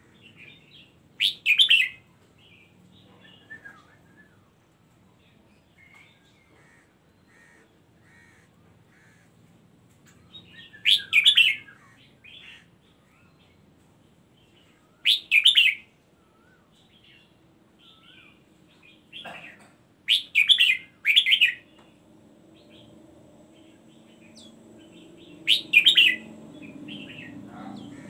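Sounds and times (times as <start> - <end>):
loud bird song phrases: 0.0 - 9.4, 10.0 - 28.0
bird chirping and warbling: 0.2 - 2.0, 10.2 - 13.4, 14.6 - 16.6, 20.1 - 28.0.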